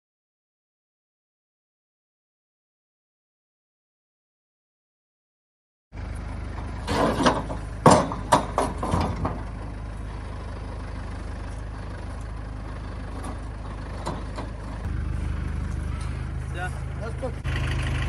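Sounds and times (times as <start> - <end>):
crane engine humming: 6.0 - 18.0
loud sharp knocks: 7.2 - 9.4.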